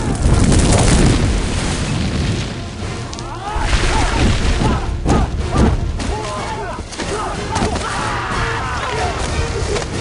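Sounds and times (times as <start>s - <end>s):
deep rumbling booms: 0.0s - 6.2s
movie score: 0.0s - 10.0s.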